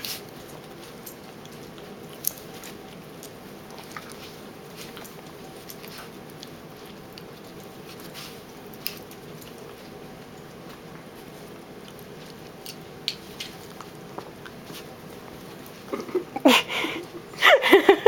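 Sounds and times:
paws scuffling in bedding: 3.5s - 12.6s.

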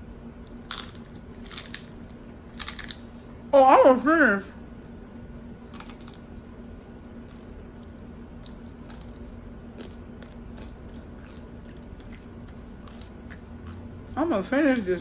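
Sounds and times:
steady low hum: 0.0s - 15.0s
person chewing food: 0.5s - 3.3s, 5.7s - 6.4s, 7.1s - 14.2s.

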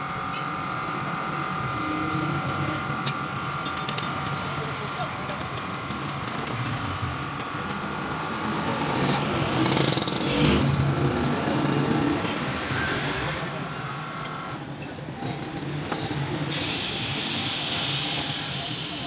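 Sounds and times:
traffic noise: 0.0s - 19.0s
people talking: 0.4s - 6.6s, 16.2s - 19.0s.

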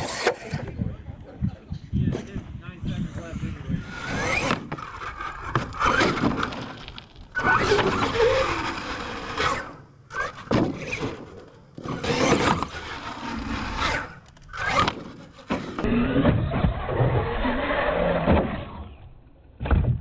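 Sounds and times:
toy truck motor whining: 0.0s - 0.6s, 3.4s - 19.0s.

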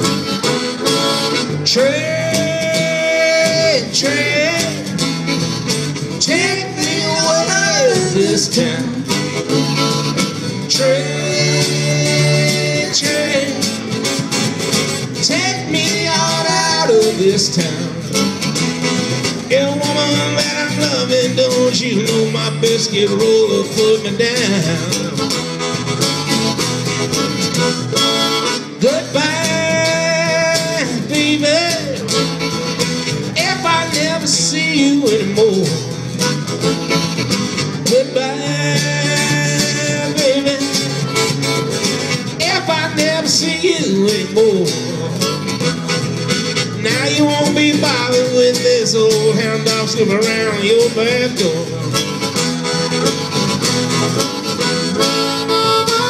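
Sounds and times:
guitar: 0.0s - 56.0s
live blues-rock band: 0.0s - 56.0s
person singing: 1.6s - 5.0s, 6.2s - 9.1s, 10.6s - 14.0s, 15.2s - 18.0s, 28.8s - 32.0s, 37.8s - 41.2s, 42.3s - 45.2s.

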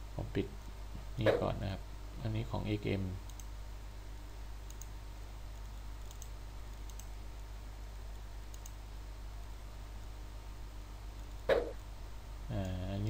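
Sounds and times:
low electrical hum: 0.0s - 13.0s
faint computer mouse clicks: 3.2s - 3.5s, 4.7s - 4.9s, 5.6s - 7.5s, 8.5s - 8.8s.

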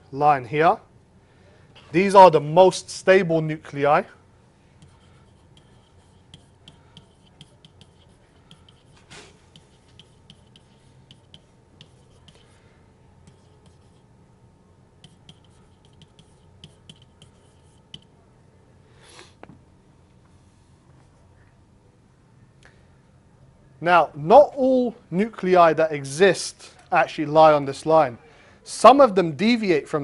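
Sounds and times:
low steady hum: 0.0s - 30.0s
stylus scratching on tablet: 4.8s - 12.6s, 13.2s - 14.1s, 15.0s - 18.1s.

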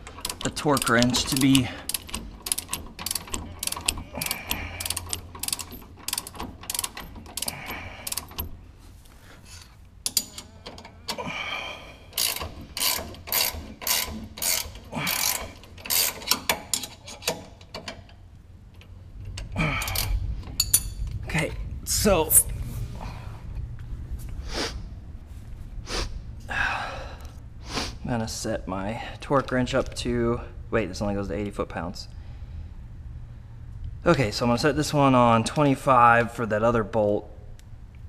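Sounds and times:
torque wrench ratcheting: 0.0s - 8.6s, 12.1s - 18.0s, 19.6s - 20.9s.

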